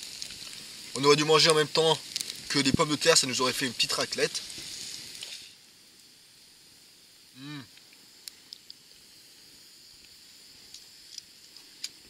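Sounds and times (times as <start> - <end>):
faint background hiss: 0.0 - 12.0
person humming: 7.4 - 7.8.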